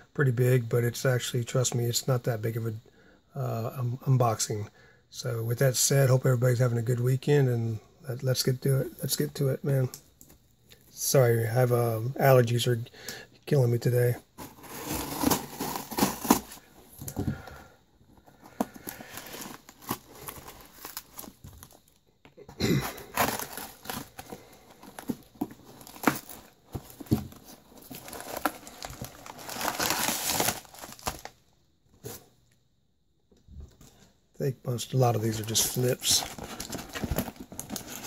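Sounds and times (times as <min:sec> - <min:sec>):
cardboard rustling and tearing: 0:14.4 - 0:16.7, 0:18.6 - 0:21.8, 0:22.8 - 0:31.3, 0:35.3 - 0:38.0
packing material crinkling: 0:14.4 - 0:17.2, 0:18.2 - 0:22.0, 0:22.6 - 0:31.4, 0:35.0 - 0:38.0.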